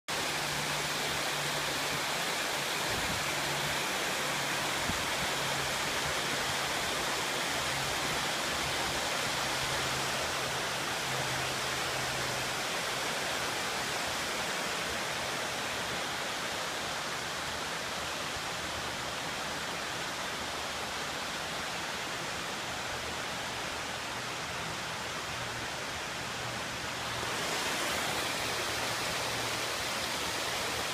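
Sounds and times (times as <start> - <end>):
water rushing over rock: 0.1 - 16.6, 26.2 - 30.9.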